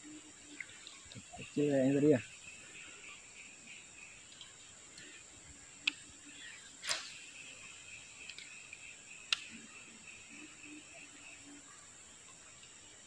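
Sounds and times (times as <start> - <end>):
high-pitched insect drone: 0.0 - 13.0
sharp clicks: 9.3 - 9.5.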